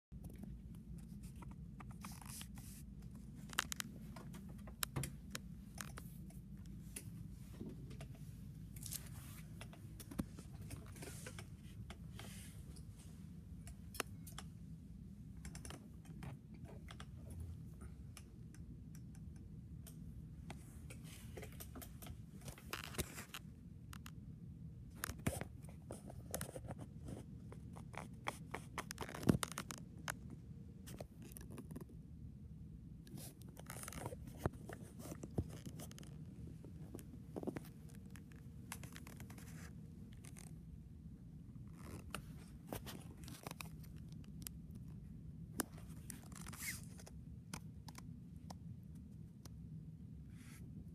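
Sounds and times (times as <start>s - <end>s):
steady low hum: 0.1s - 50.9s
phone handling clicks and rustles: 0.2s - 12.9s, 27.8s - 30.3s, 41.7s - 44.6s.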